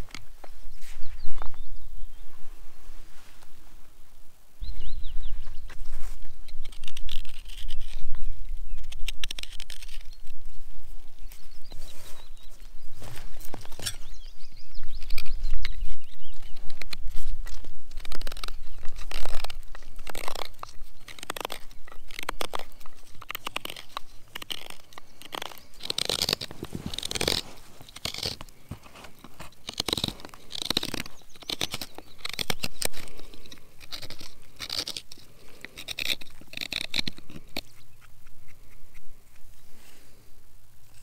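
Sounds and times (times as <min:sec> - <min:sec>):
knife carving wood: 0:05.7 - 0:11.6, 0:13.3 - 0:39.6.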